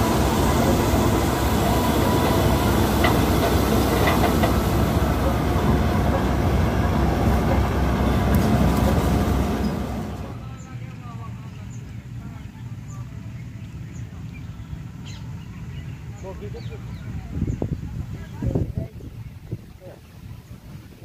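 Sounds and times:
combine harvester rumbling: 0:00.0 - 0:15.5.

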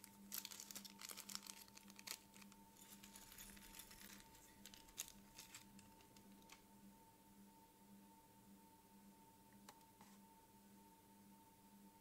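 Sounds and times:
plastic bag crinkling: 0:00.0 - 0:06.6
faint steady hum: 0:00.0 - 0:12.0.

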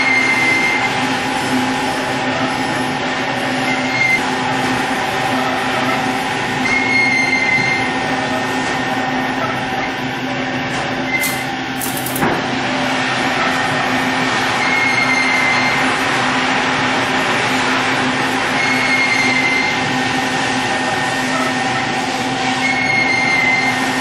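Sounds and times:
short high squeaks: 0:11.1 - 0:12.2.

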